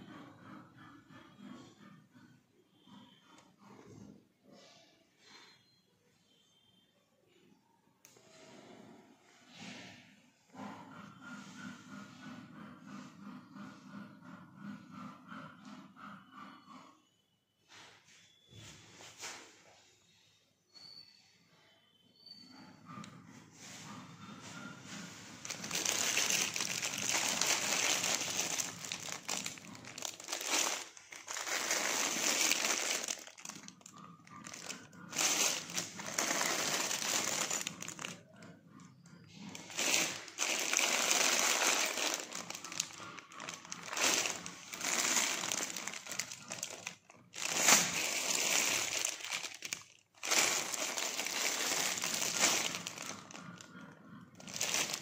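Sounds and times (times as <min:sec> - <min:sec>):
plastic bags crinkling: 0:25.4 - 0:38.5, 0:39.3 - 0:55.0.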